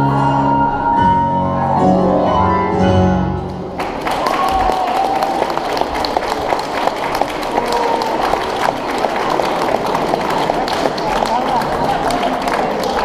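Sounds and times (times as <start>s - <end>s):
audience applause: 3.5s - 13.0s.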